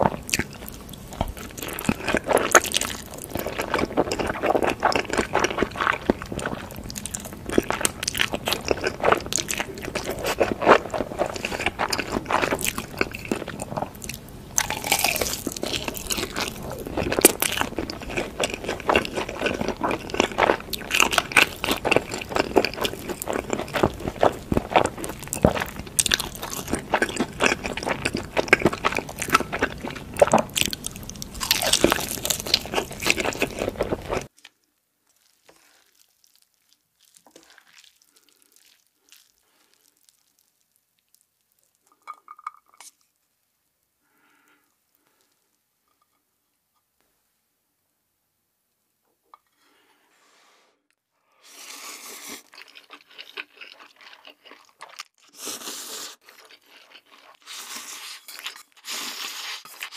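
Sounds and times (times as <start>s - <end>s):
crackles of crispy coating: 0.0s - 42.1s
chewing: 0.0s - 43.0s, 51.7s - 59.9s
crunching bites of fried chicken: 52.3s - 59.0s.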